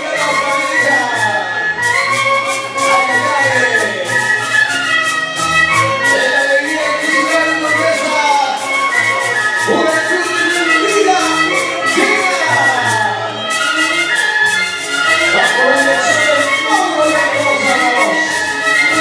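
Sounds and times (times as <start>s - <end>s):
steady percussive beat: 0.0s - 19.0s
violin folk dance melody: 0.0s - 19.0s.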